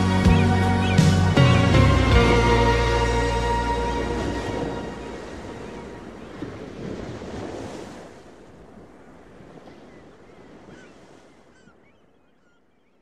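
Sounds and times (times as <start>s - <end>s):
ocean surf washing in: 0.0s - 9.8s.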